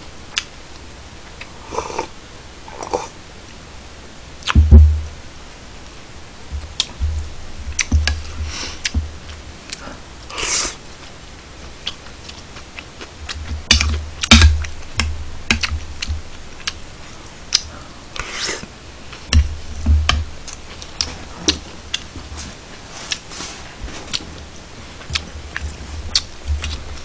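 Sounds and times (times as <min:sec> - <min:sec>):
dull thumps on table: 0:04.6 - 0:05.1.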